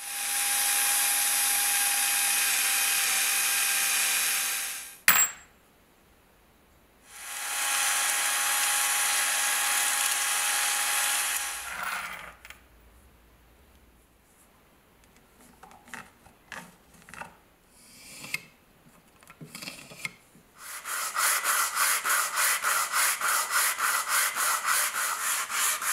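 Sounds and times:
electric drill boring steel: 0.0s - 5.0s, 7.1s - 12.3s.

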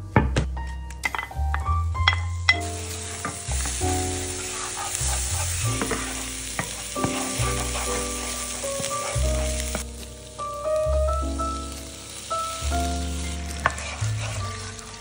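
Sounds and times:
background music with chords and bass: 0.0s - 15.0s
onion and garlic sizzling in a pan: 1.0s - 15.0s
wooden spatula stirring: 2.7s - 9.9s, 12.4s - 15.0s.

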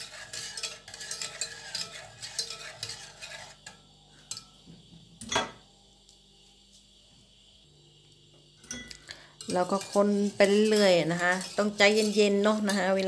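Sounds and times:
whisk scraping a pot: 0.0s - 4.4s, 9.4s - 13.0s.

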